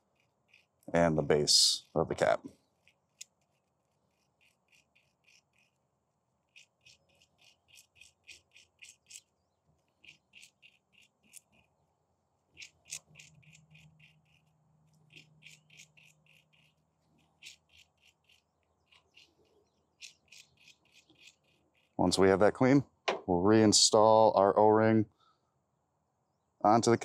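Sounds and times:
brush scrubbing metal: 12.6 - 22.0.

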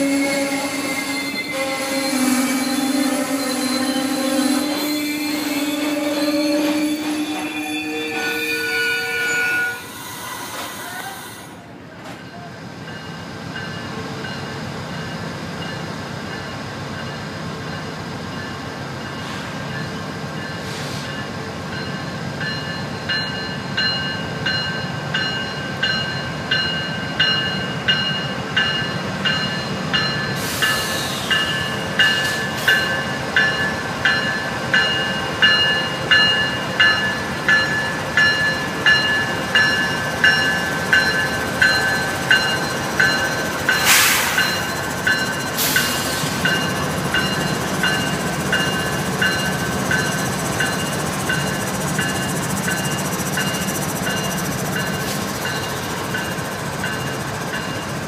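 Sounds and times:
diesel locomotive engines droning: 0.0 - 58.0
locomotive bell ringing: 12.3 - 58.0.

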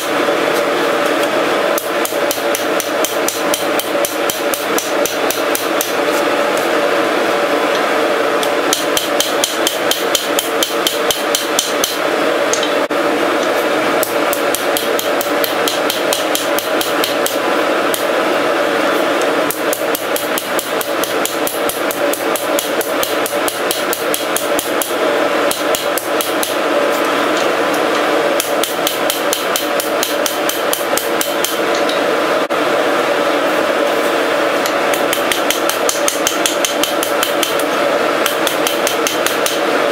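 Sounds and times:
hammer striking steel on anvil: 1.8 - 6.0, 8.4 - 12.8, 14.0 - 18.0, 19.5 - 24.9, 25.5 - 26.6, 28.4 - 32.0, 34.9 - 39.6.

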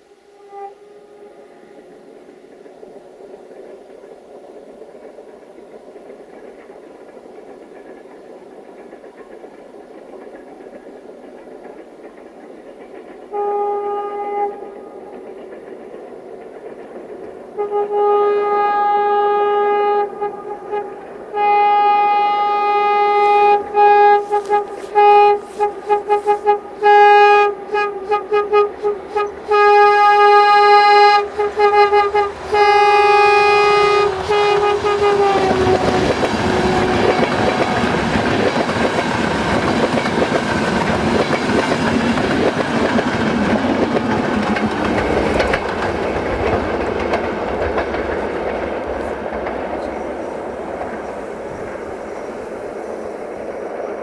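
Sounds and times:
train rumble: 0.0 - 54.0
locomotive air horn blasts: 0.3 - 1.6, 13.3 - 14.7, 17.6 - 38.2.

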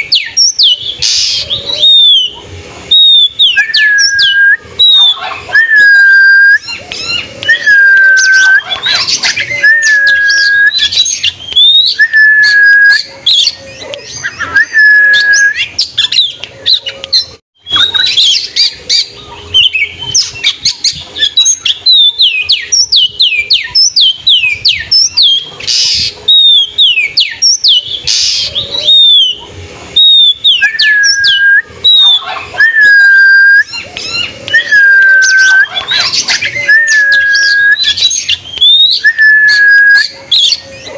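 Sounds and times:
songbird singing: 0.0 - 40.9.

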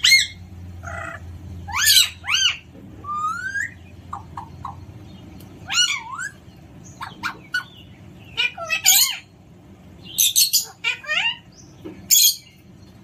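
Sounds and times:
parrot calling: 0.0 - 9.4, 10.0 - 12.6
steady low hum: 0.0 - 13.0.

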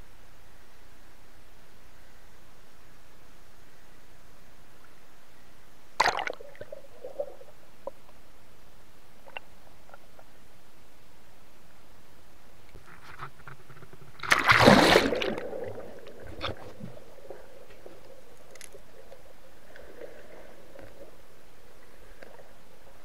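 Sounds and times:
steady hiss: 0.0 - 23.0
underwater rushing bubbling burst: 14.2 - 17.4.

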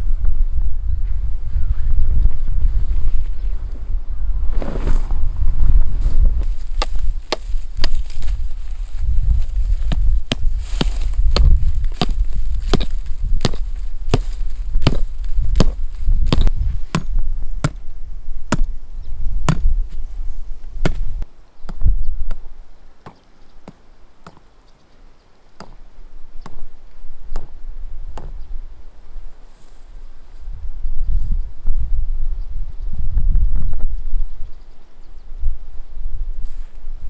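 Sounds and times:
low rumble: 0.0 - 18.3
blade chopping: 9.9 - 17.8.

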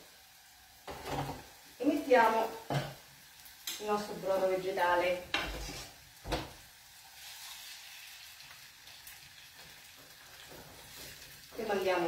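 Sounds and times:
food sizzling in a pan: 0.0 - 12.0.

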